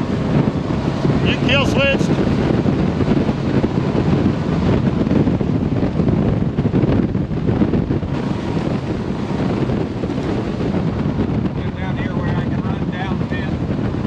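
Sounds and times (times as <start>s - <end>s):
boat hull on water: 0.0s - 14.0s
outboard engine drone: 0.0s - 14.0s
wind buffeting microphone: 0.0s - 14.0s.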